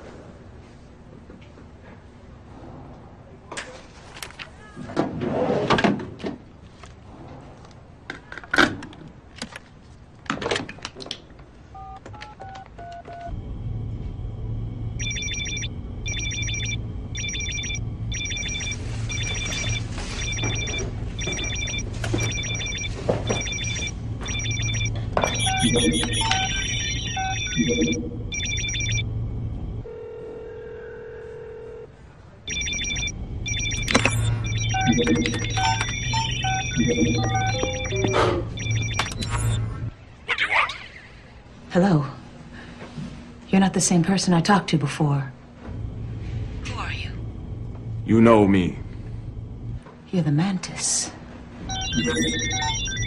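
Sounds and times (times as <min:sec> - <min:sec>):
telephone keypad beeps: 0:11.8 - 0:13.3, 0:15.0 - 0:29.0, 0:32.5 - 0:39.6, 0:51.7 - 0:53.0
electronic chirping phone ring: 0:15.0 - 0:29.0, 0:32.5 - 0:39.6, 0:51.7 - 0:53.0.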